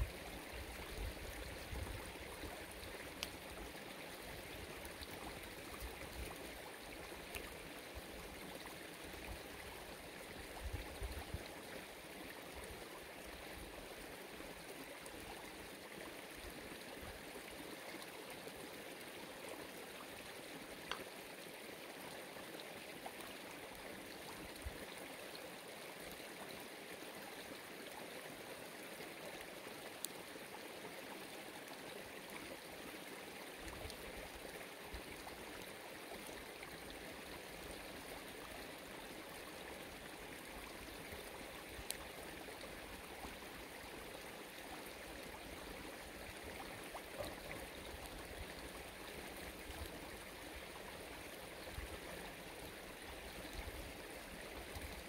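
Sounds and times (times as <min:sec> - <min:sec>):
running water: 0:00.0 - 0:55.0
faint sharp clicks: 0:03.2 - 0:03.4, 0:07.3 - 0:07.5, 0:20.8 - 0:21.1.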